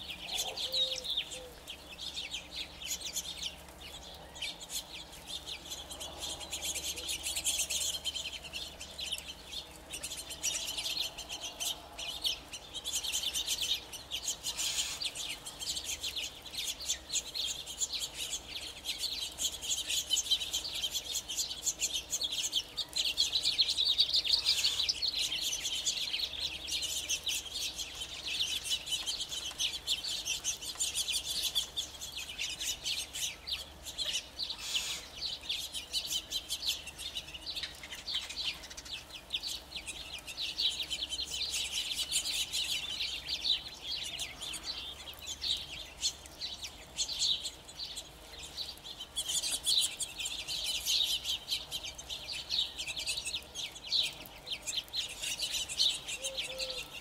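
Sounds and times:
quail chipping and clucking: 0.0s - 57.0s.

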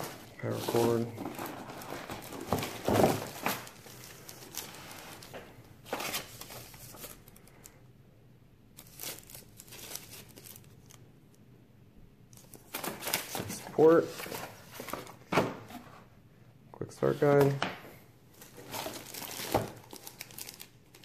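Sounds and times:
paper rustling: 0.0s - 7.7s, 12.4s - 15.9s
plastic bags crinkling: 0.0s - 7.8s, 8.8s - 11.0s, 18.4s - 21.0s.

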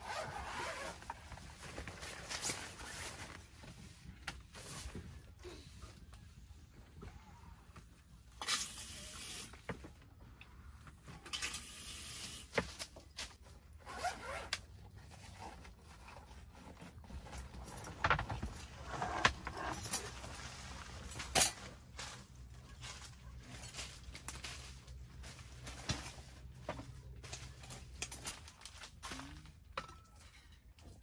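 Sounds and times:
gear scraping and rustling: 0.0s - 5.2s, 12.8s - 29.6s.

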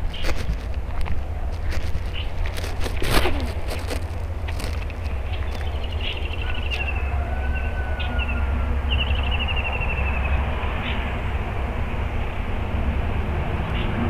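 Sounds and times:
small birds chirping: 0.0s - 11.2s
wind rumble on microphone: 0.0s - 14.0s.

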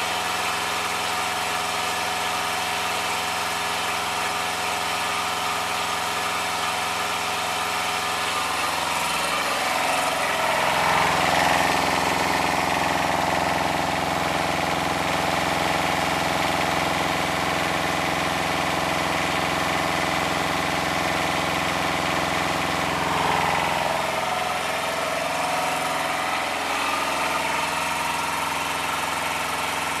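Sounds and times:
diesel engine idling and revving: 0.0s - 30.0s.

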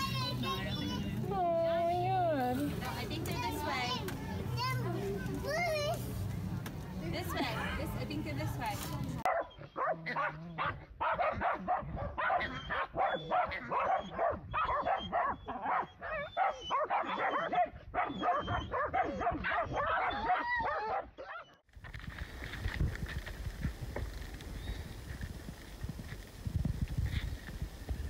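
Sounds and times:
dogs barking and yapping: 9.2s - 21.7s.

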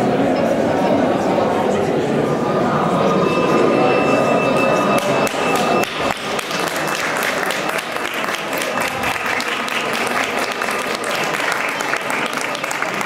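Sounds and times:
murmur of voices: 0.0s - 13.0s
faint held tones: 2.7s - 6.2s
audience applause: 5.0s - 13.0s.

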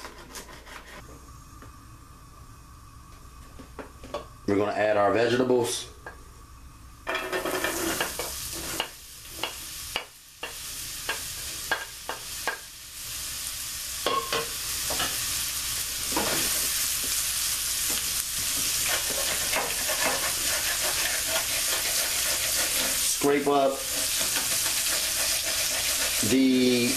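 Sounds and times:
vegetables sizzling in grease: 6.4s - 26.9s.

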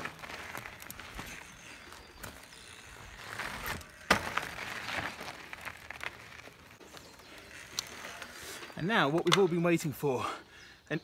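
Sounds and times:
bike tyres crunching on gravel: 0.0s - 10.4s
bike landing thud: 3.2s - 6.0s.

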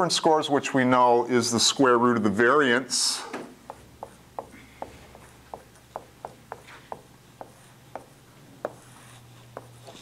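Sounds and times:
marker writing on whiteboard: 3.6s - 10.0s.

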